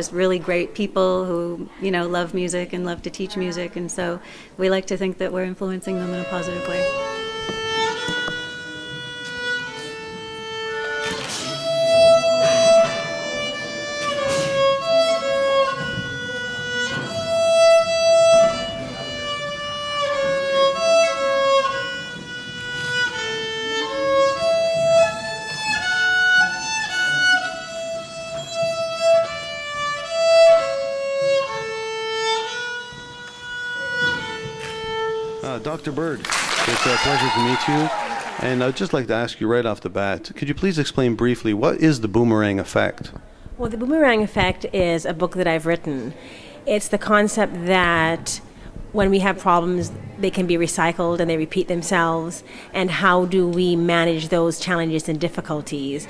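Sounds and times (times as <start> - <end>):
violin melody: 2.0 - 36.2.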